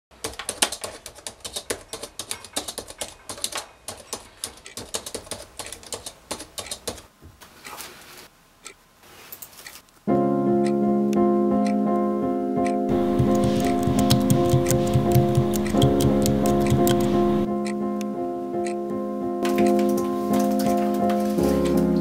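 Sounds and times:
computer keyboard typing: 0:00.2 - 0:07.1, 0:12.9 - 0:17.5, 0:19.5 - 0:21.8.

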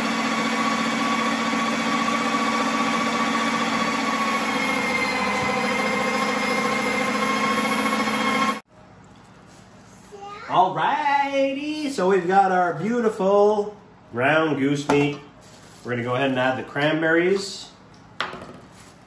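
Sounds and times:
electric meat grinder running: 0:00.0 - 0:08.6.

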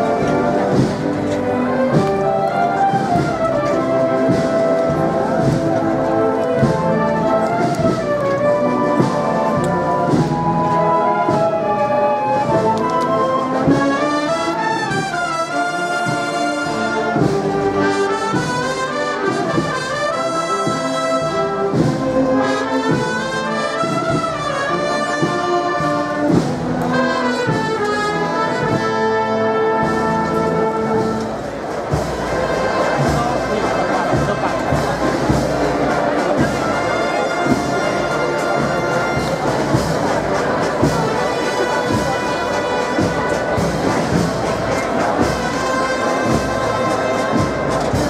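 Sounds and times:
drum strokes: 0:00.0 - 0:14.1, 0:29.8 - 0:48.0
trumpets and trombones playing march: 0:00.0 - 0:48.0.

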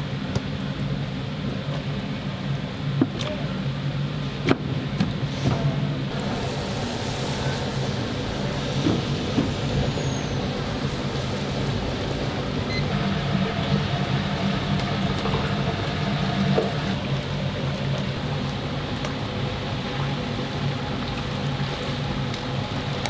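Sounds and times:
chickens deep-frying in oil: 0:06.1 - 0:23.0.

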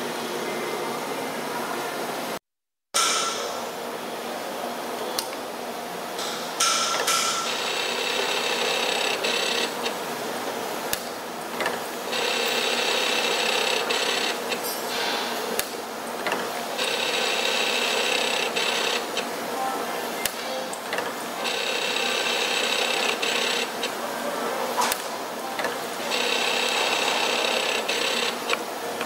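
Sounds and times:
sharp machine clicks: 0:06.6 - 0:10.0, 0:10.9 - 0:14.7, 0:15.6 - 0:19.3, 0:20.2 - 0:24.0, 0:25.6 - 0:29.0.

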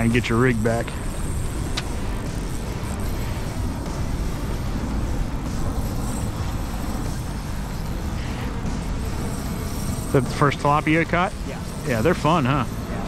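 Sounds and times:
low rumbling background noise: 0:00.0 - 0:13.0.

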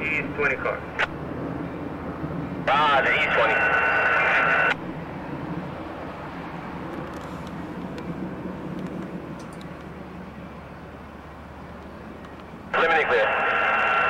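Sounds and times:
distant train: 0:00.0 - 0:14.0
low rumble of vehicles: 0:00.0 - 0:14.0
two-note radio tone: 0:02.7 - 0:04.8, 0:12.8 - 0:14.0
faint clicks: 0:11.8 - 0:12.5.

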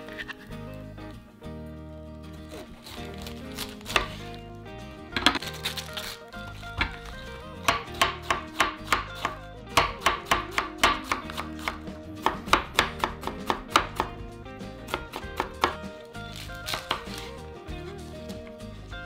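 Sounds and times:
soft background music: 0:00.0 - 0:19.0
knife chopping on wooden board: 0:02.5 - 0:04.3, 0:05.2 - 0:06.1, 0:06.7 - 0:14.2, 0:14.8 - 0:17.3.

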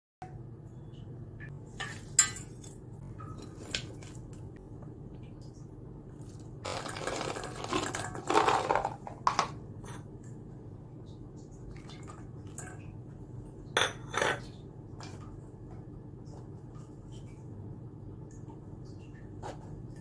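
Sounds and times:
dishes clinking against metal bowl: 0:01.7 - 0:03.9, 0:13.8 - 0:14.6
peas pouring onto vegetables: 0:06.6 - 0:09.0.

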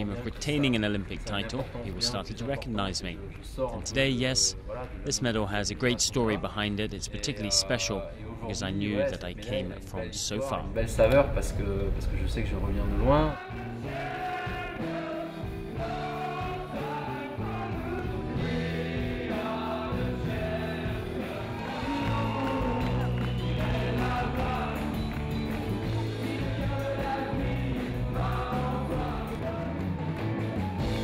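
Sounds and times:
group of people singing: 0:13.4 - 0:31.0
live band music: 0:13.9 - 0:31.0.

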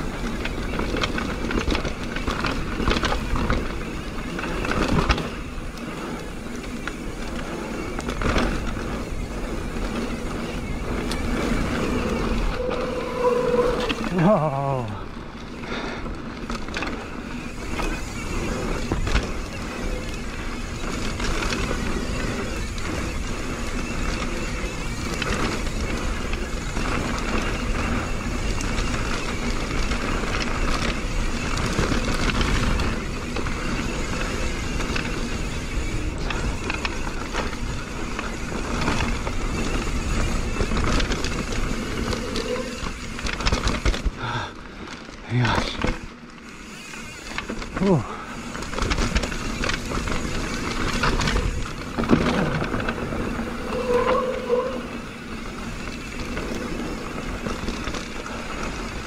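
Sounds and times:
bike knocking and rattling: 0:00.0 - 0:59.0
wind and tyre noise: 0:00.0 - 0:59.0.

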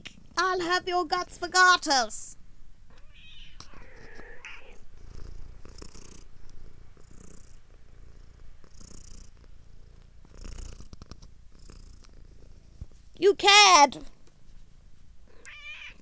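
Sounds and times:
cat purring: 0:02.9 - 0:13.0.

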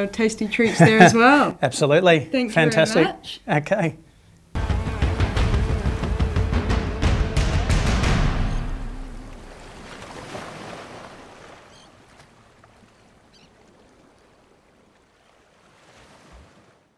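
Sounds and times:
held music note: 0:04.6 - 0:10.0
ocean surf washing: 0:04.6 - 0:16.9.

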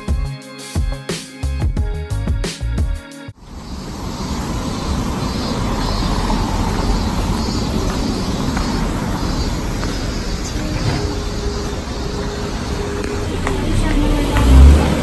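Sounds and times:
cars driving past: 0:03.4 - 0:15.0.

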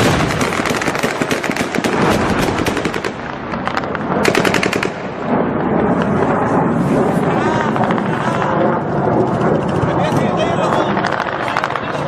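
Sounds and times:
machine-gun fire: 0:00.0 - 0:05.4.

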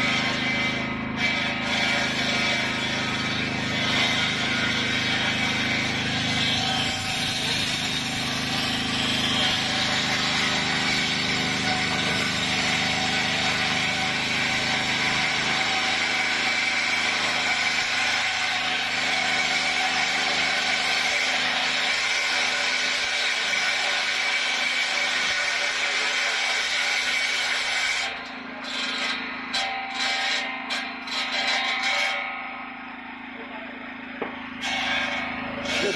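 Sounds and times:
circular saw blade ripping log: 0:34.5 - 0:35.9.

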